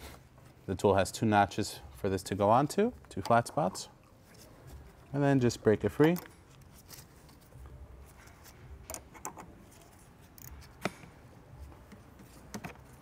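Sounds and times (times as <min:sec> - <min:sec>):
metallic wrench clicks: 0:10.4 - 0:10.6.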